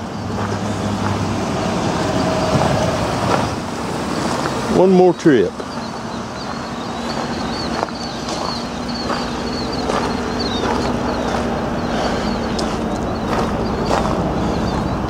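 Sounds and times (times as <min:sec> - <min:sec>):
car engine idling: 0:00.0 - 0:15.0
footsteps crunching on gravel: 0:00.2 - 0:01.2, 0:05.6 - 0:15.0
small high chirps: 0:05.6 - 0:15.0.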